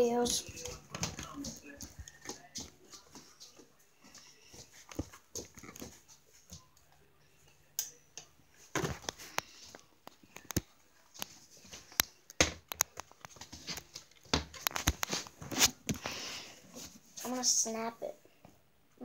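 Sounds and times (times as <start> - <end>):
camera rustling against clothing: 12.8 - 16.1.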